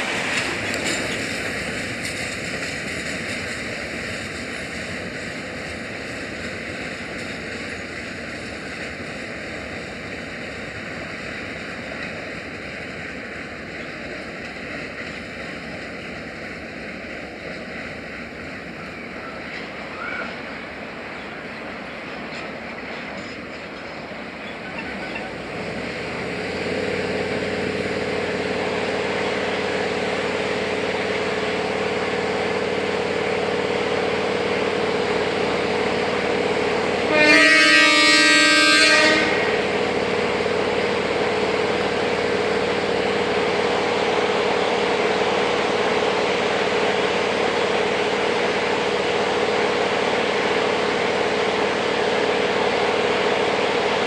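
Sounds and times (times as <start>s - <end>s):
diesel locomotive engine droning: 0.0s - 54.0s
locomotive horn blast: 37.0s - 39.8s.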